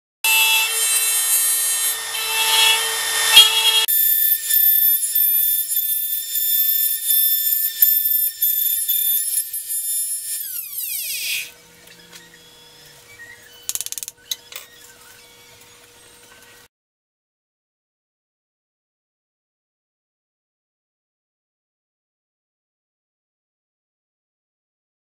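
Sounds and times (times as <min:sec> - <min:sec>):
electric router whining: 0:00.3 - 0:16.6
router motor spinning down: 0:00.3 - 0:16.6
sharp clicks: 0:13.7 - 0:14.4.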